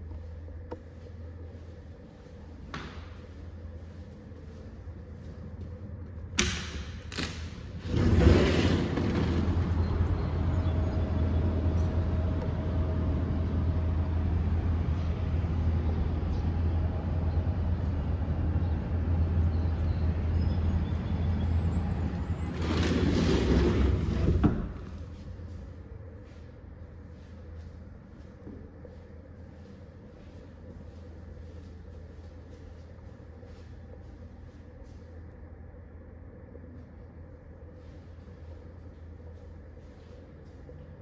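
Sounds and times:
sliding door opening and shutting: 0:06.4 - 0:10.5, 0:22.1 - 0:25.0
street traffic: 0:07.8 - 0:28.0.

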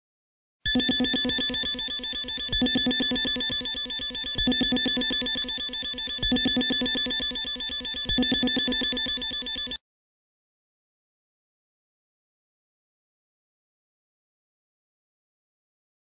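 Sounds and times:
electronic alarm high pulsing tone: 0:00.7 - 0:09.8.

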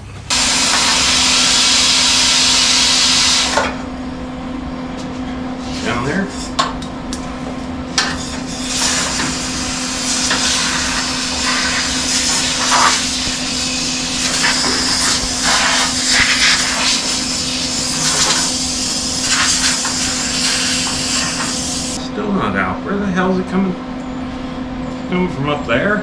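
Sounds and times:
plasma cutter hissing and crackling: 0:00.3 - 0:03.6, 0:08.0 - 0:22.0.

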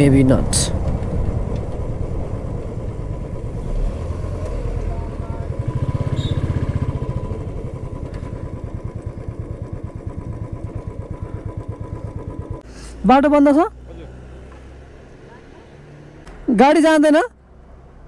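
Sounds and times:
motorcycle engine thumping: 0:00.7 - 0:03.6, 0:04.3 - 0:12.7.

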